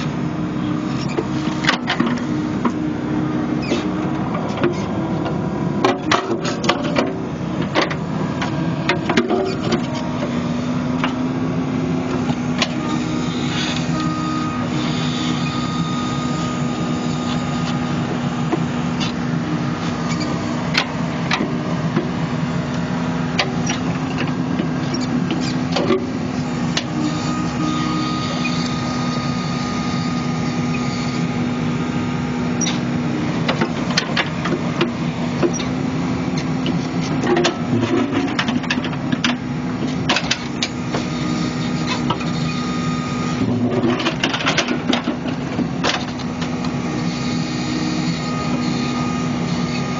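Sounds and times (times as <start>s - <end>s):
excavator engine humming: 0.0s - 49.9s.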